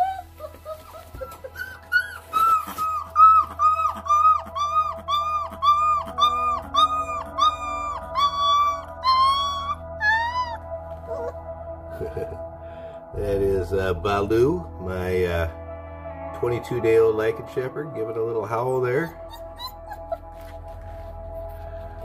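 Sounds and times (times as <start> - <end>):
puppy howling: 0.0 - 11.5, 18.7 - 22.0.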